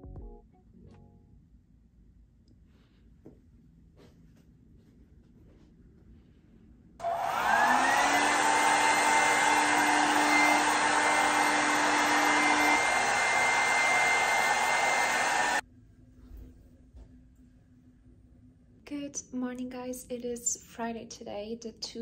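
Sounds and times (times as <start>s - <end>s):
hot air brush whining: 7.0s - 15.6s.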